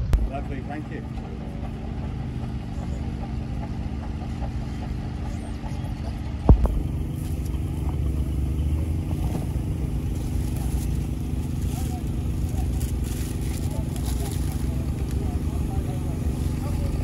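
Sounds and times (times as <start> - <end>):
engine humming steadily: 0.0 - 17.0
sharp thump: 6.5 - 7.5.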